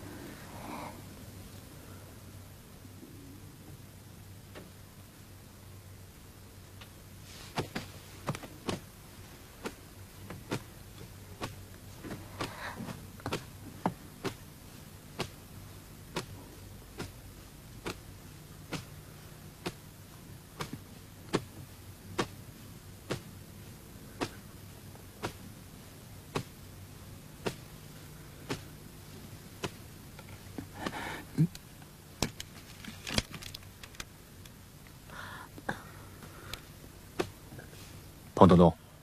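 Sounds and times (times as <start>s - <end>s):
low steady hum: 0.0s - 39.0s
rustle: 0.0s - 39.0s.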